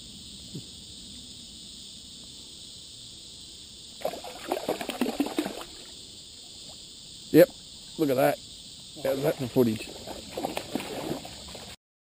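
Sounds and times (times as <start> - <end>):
insects chirring: 0.0 - 11.8
fish splashing at water surface: 4.0 - 5.9, 9.1 - 11.8.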